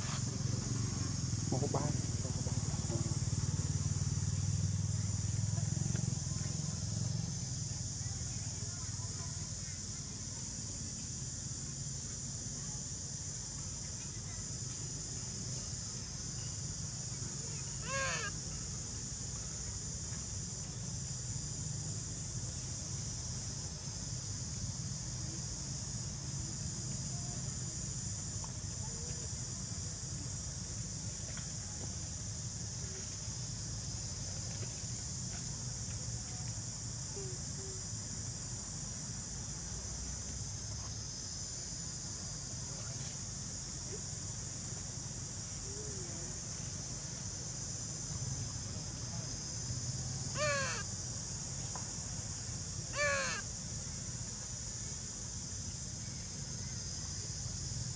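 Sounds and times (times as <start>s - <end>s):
high outdoor hiss: 0.0s - 57.9s
harsh animal calls: 17.8s - 18.3s, 50.4s - 50.9s, 53.0s - 53.4s.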